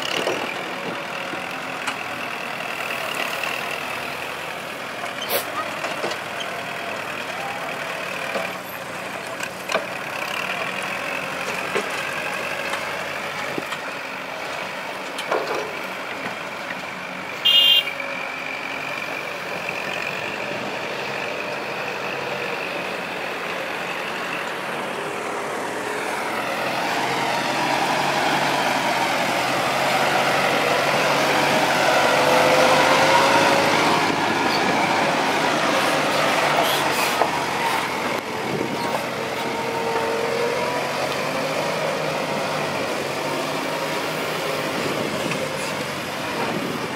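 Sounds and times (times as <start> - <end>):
dump truck engine driving: 0.0 - 46.9
tractor diesel engine running: 0.0 - 46.9.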